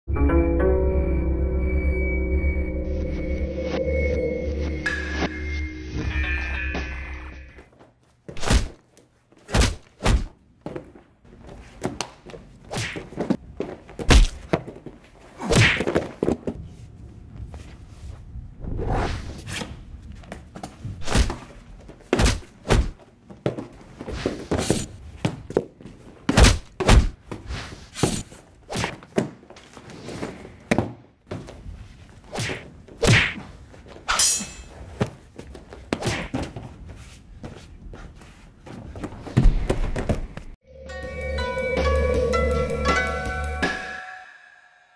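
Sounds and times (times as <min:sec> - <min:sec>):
bare feet thumping on mats: 0:20.2 - 0:28.2, 0:35.0 - 0:40.6.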